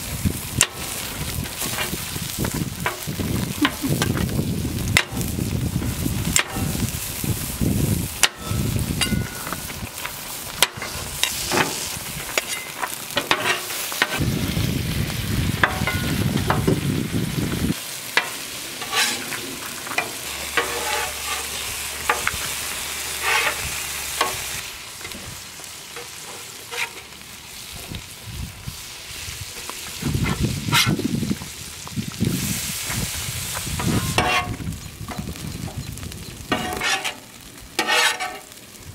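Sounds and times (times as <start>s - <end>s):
food sizzling on a griddle: 0.0s - 38.9s
metal spatula scraping steel: 10.7s - 14.2s, 18.2s - 22.3s, 23.1s - 25.2s, 26.0s - 27.1s, 30.3s - 31.0s, 33.8s - 34.6s, 36.5s - 37.2s, 37.8s - 38.5s.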